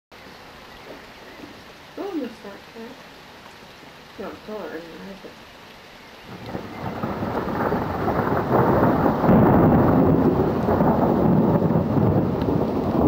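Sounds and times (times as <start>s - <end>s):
thunder rumbling: 6.2s - 13.0s.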